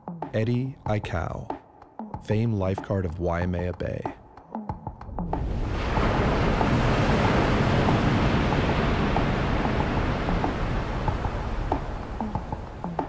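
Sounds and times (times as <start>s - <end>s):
ocean waves breaking: 5.0s - 13.0s.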